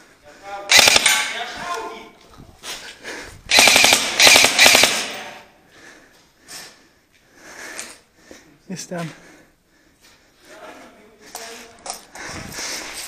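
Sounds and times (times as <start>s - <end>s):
airsoft rifle rapid shots: 0.7s - 1.4s, 3.5s - 5.4s.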